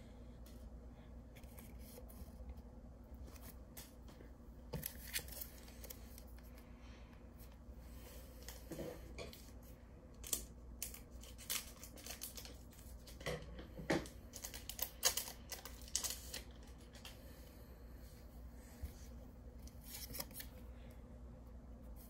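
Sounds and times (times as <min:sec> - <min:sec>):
foil wrapper crinkling: 0:10.2 - 0:13.2, 0:14.3 - 0:17.1.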